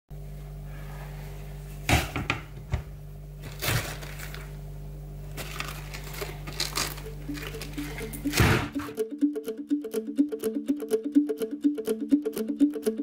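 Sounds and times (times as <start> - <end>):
steady low hum: 0.3 - 9.2.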